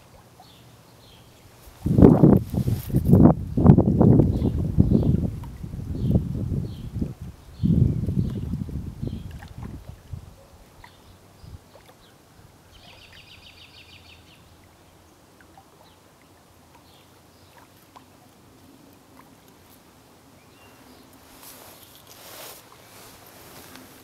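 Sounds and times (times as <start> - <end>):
soft rush of noise: 0.0 - 7.8, 10.0 - 24.0.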